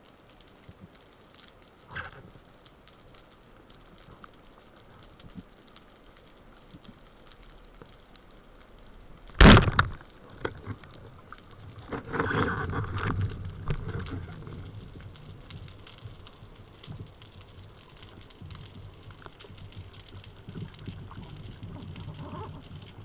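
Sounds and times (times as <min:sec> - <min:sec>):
speargun shot crack: 0:09.4 - 0:09.8.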